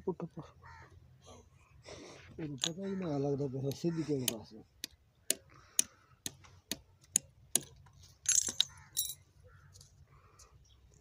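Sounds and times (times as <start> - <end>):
metal tools rattling: 8.2 - 9.2.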